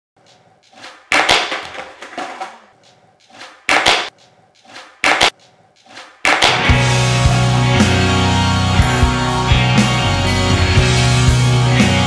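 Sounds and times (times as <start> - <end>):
skateboard cracking on concrete: 0.8 - 2.6.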